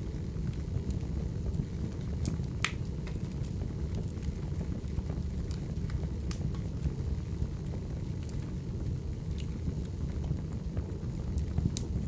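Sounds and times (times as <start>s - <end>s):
fire crackles and pops: 0.0s - 12.0s
fire rumbling: 0.0s - 12.0s.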